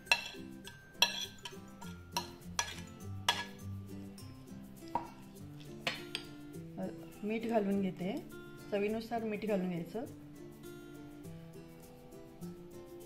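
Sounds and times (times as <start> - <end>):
spoon clinking on ceramic plate: 0.0 - 3.7, 5.8 - 6.4
soft background music: 0.0 - 13.0.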